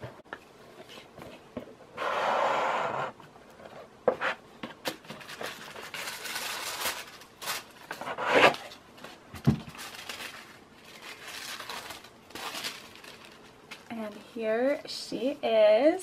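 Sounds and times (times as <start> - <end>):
tissue paper rustling: 5.1 - 8.0, 8.6 - 14.3.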